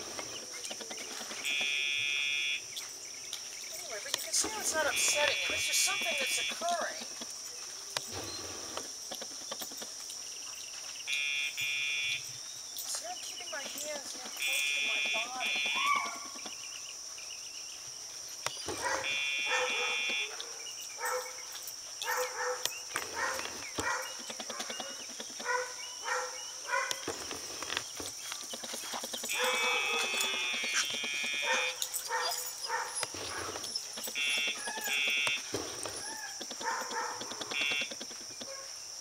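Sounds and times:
animal calls: 14.4s - 16.5s, 22.0s - 38.7s.

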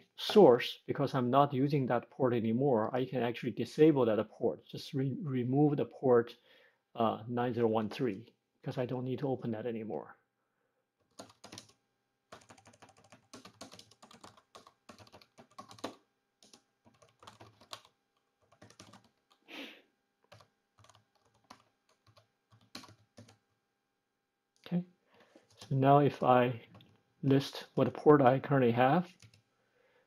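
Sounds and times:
computer keyboard typing: 11.0s - 19.4s, 20.2s - 23.4s, 25.4s - 25.7s, 29.1s - 29.4s.

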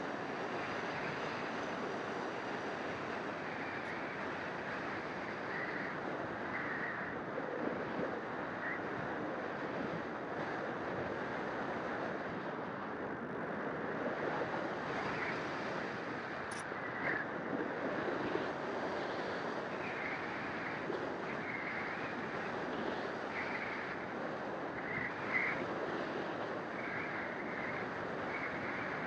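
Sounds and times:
wind rushing over camera: 0.0s - 29.0s.

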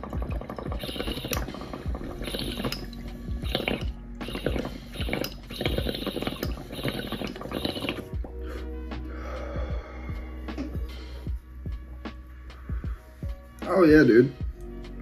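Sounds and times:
water bubbling through glass pipe: 0.0s - 8.4s.

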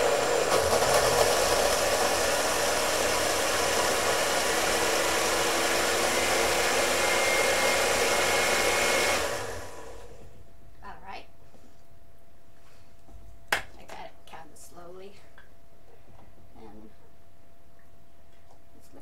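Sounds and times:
blender whirring: 0.0s - 10.3s.

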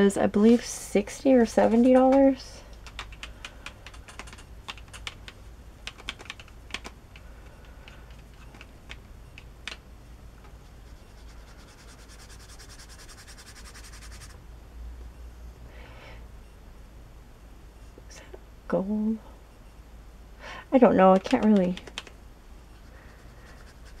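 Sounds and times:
brush strokes scratching on paper: 10.6s - 14.4s, 22.7s - 24.0s.

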